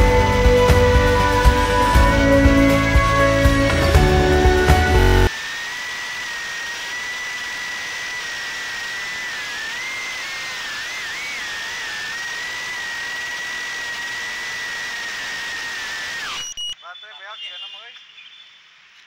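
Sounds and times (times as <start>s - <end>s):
drone motors whining: 0.0s - 16.8s.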